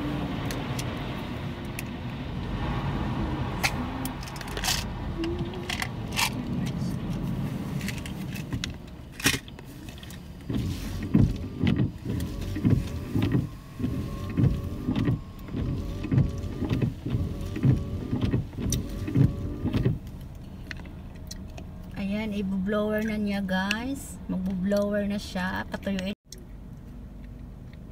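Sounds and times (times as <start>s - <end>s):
car wash motor whine: 0.0s - 8.9s, 9.6s - 20.3s
low rhythmic thumping: 10.4s - 20.0s.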